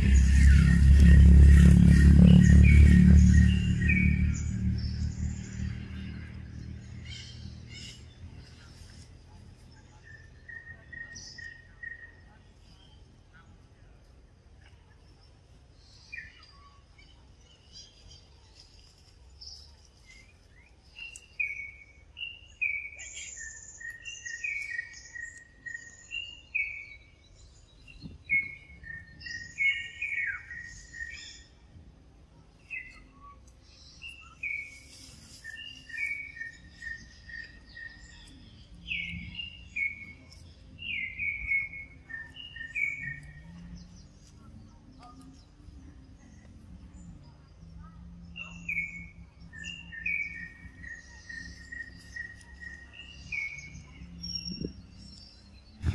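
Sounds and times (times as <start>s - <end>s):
high bird chirps: 0.0s - 8.8s, 32.6s - 44.2s
songbird whistling: 27.9s - 31.6s, 40.8s - 43.4s.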